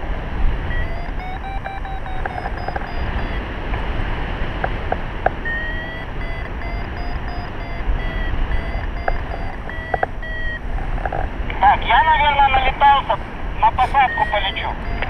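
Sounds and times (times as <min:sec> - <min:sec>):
variometer beeping: 0:00.6 - 0:03.6, 0:04.7 - 0:11.3, 0:13.8 - 0:15.0.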